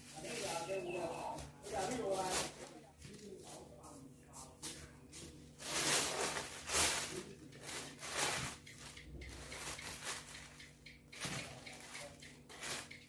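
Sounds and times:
plastic bag rustling: 0.0s - 3.6s, 4.6s - 10.6s.

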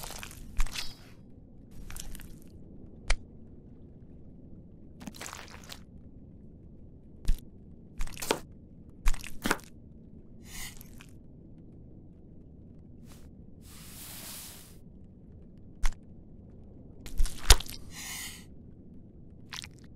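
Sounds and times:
soft swishes: 13.1s - 14.8s.

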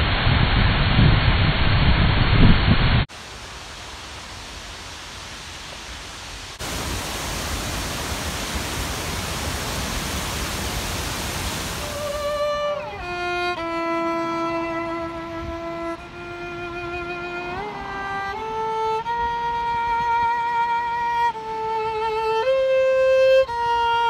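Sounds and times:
waterfall roaring: 3.1s - 13.2s
solo violin long notes: 3.2s - 24.0s.

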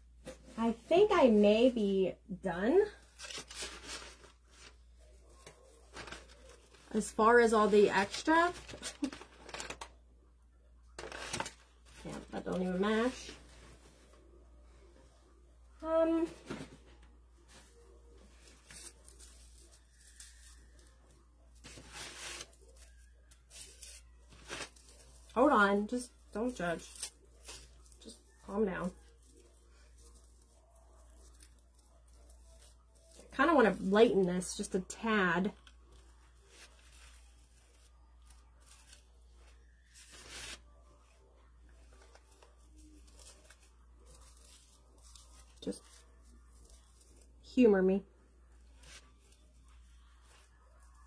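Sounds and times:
rustling of dry straw strands: 17.5s - 34.0s, 35.9s - 41.2s, 41.8s - 47.5s.

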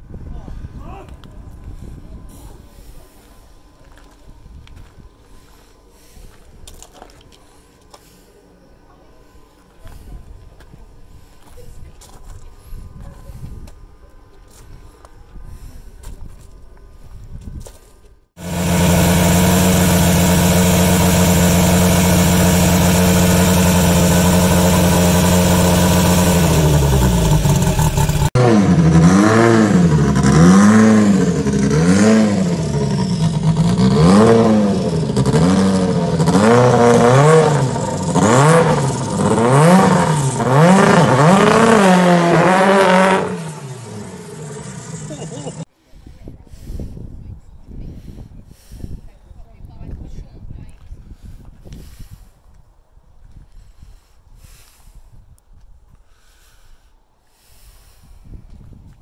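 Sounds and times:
rally car engine revving: 18.4s - 45.6s.

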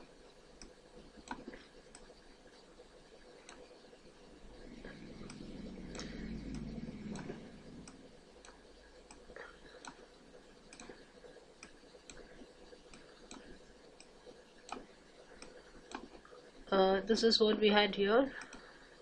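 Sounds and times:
faint steady ticking: 0.0s - 19.0s
low rumble: 4.3s - 8.8s.

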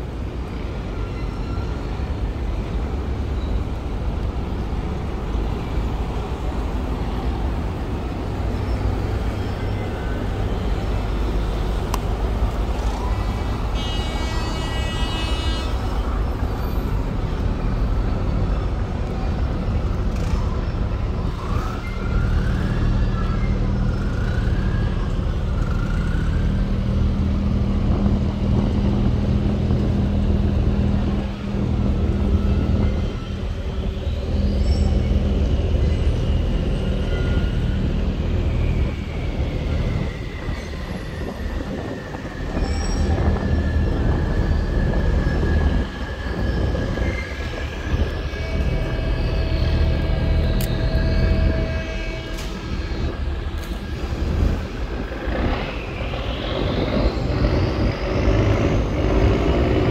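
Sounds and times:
barge diesel engines running: 0.0s - 59.9s
high horn blast: 13.6s - 16.3s, 47.9s - 54.5s
nearer engine low hum: 15.6s - 59.9s.

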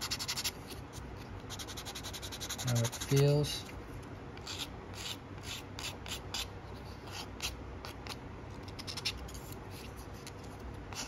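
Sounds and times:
sanding stick rasping on plastic: 1.5s - 3.4s.

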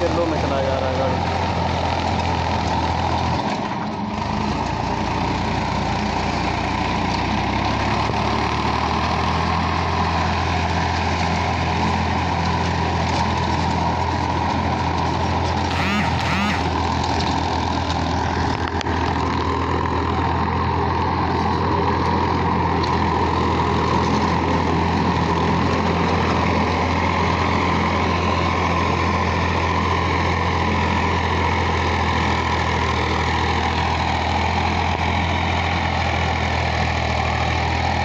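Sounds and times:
tractor diesel engine running: 0.0s - 38.0s.

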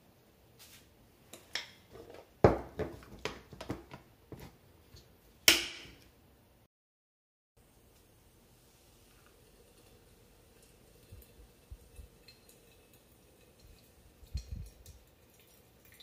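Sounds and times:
objects knocking on wooden counter: 2.0s - 4.5s.

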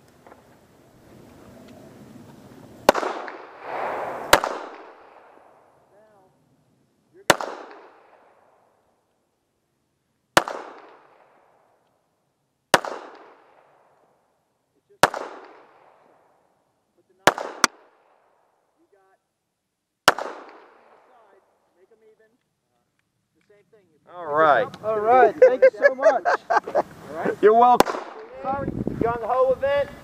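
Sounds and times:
pistol shots with echo: 2.8s - 5.8s, 7.2s - 8.7s, 10.4s - 11.7s, 12.7s - 14.0s, 15.0s - 16.3s, 17.2s - 18.4s, 20.0s - 21.3s, 27.8s - 28.3s.

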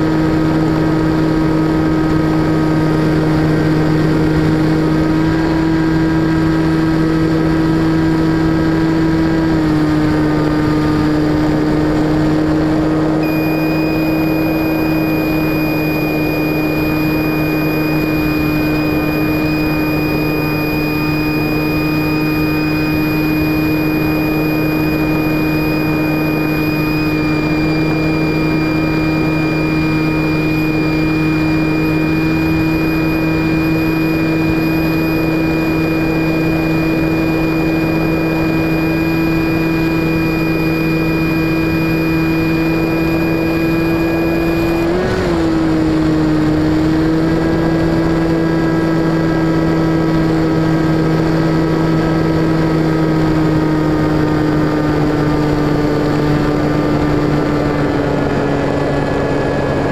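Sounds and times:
model plane motor humming: 0.0s - 59.9s
thin high whine: 0.0s - 59.9s.

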